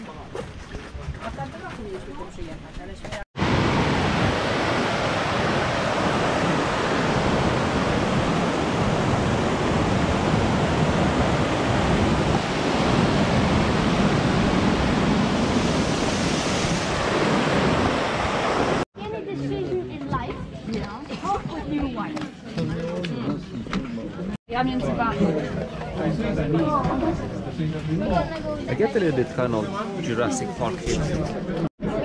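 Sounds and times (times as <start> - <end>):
waterfall rushing water roar: 3.4 - 18.8.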